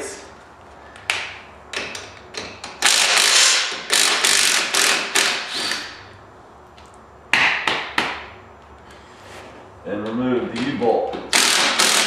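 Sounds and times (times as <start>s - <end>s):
impact driver hammering: 11.2s - 12.0s.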